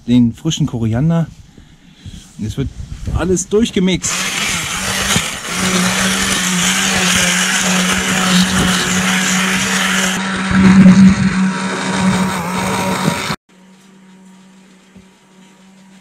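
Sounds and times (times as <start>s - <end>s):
immersion blender running: 4.0s - 13.4s.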